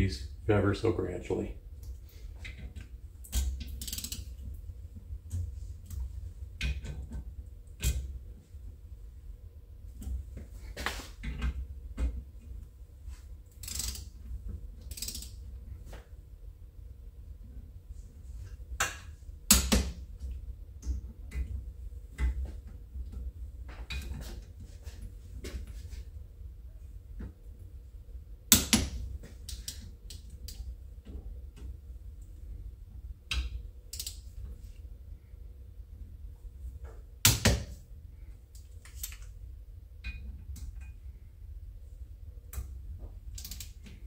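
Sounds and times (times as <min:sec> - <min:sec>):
torque wrench clicking: 0:03.8 - 0:04.3, 0:13.6 - 0:14.1, 0:14.8 - 0:15.4, 0:33.9 - 0:34.2, 0:43.4 - 0:43.8.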